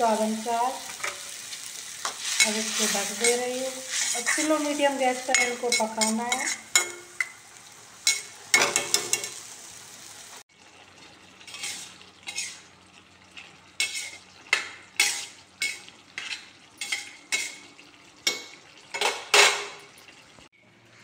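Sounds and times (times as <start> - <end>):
steady sizzle: 0.0 - 21.0
ladle scraping a pan: 2.0 - 7.3, 11.4 - 12.7, 13.3 - 17.7.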